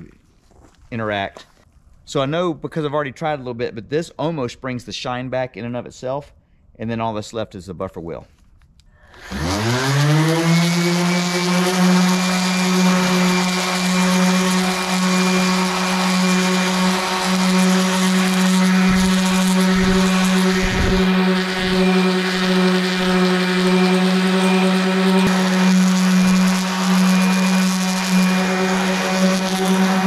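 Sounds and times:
orbital sander running: 9.1s - 30.0s.

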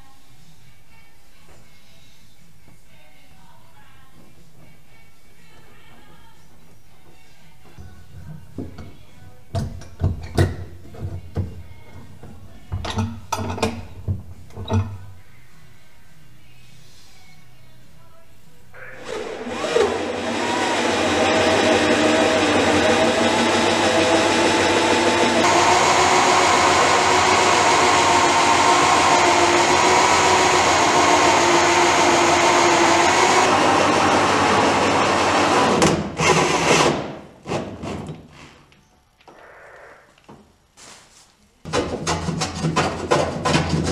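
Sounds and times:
background music: 0.0s - 35.8s
electric drill cutting wood: 19.0s - 36.9s.

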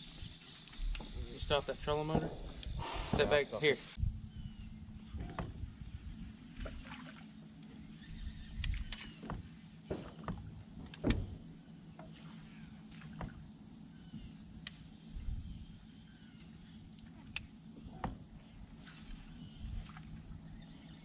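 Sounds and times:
clicks and knocks on boat: 8.6s - 11.4s.

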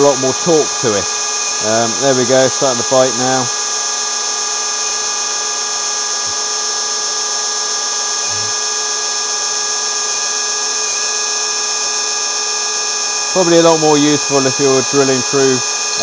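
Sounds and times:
power drill boring into wood: 0.0s - 16.0s.

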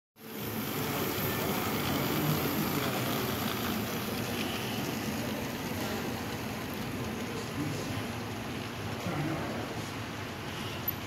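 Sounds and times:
wheels rolling on rails: 0.2s - 7.7s
model train motor hum: 0.2s - 8.7s.

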